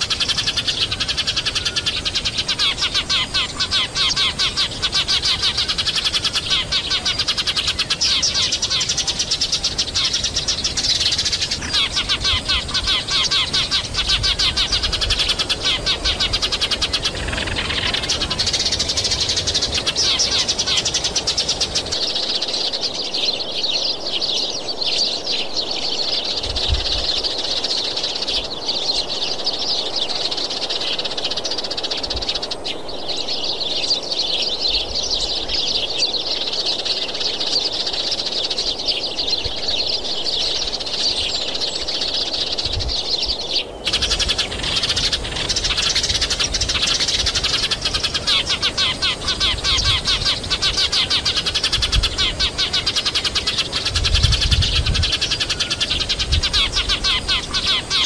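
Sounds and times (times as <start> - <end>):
small birds chirping: 0.0 - 58.0.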